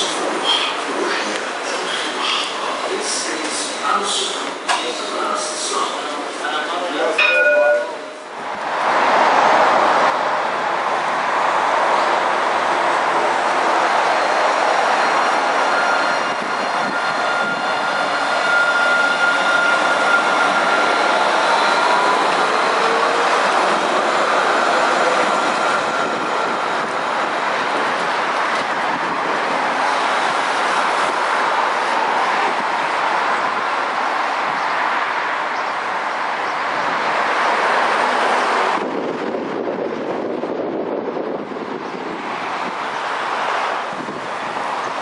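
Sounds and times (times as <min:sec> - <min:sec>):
tram rolling rumble: 0:00.0 - 0:45.0
high wheel squeal: 0:14.0 - 0:26.8.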